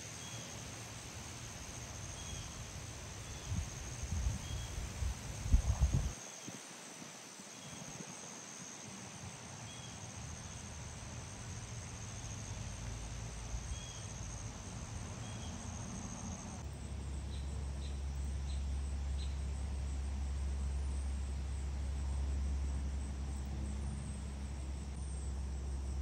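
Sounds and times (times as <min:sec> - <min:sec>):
cricket trill: 0:00.0 - 0:26.0
steady low rumble: 0:15.8 - 0:26.0.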